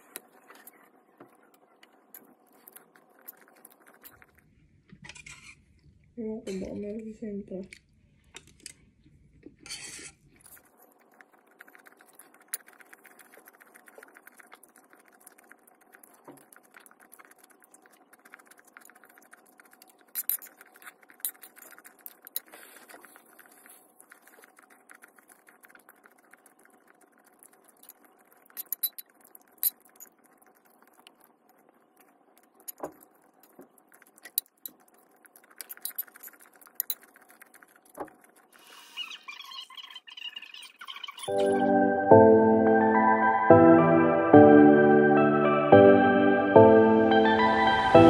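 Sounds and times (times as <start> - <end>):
chewing: 0.0 - 4.5, 10.4 - 41.6
fork clicking and scraping on plate: 27.7 - 31.2, 33.9 - 38.4.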